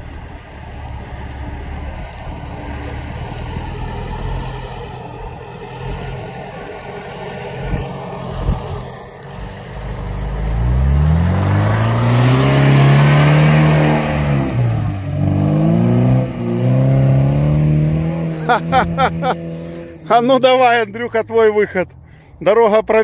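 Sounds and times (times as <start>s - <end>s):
engine revving hard: 2.0s - 20.0s.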